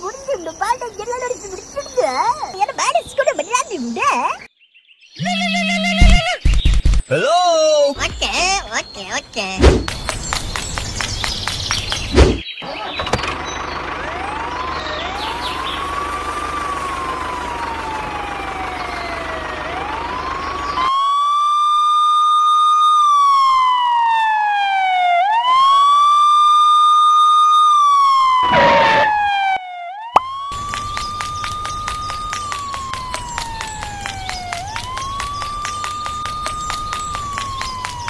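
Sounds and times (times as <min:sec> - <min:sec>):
sharp thump: 0:09.6 - 0:10.0, 0:12.1 - 0:12.4
police siren wailing: 0:13.9 - 0:38.0.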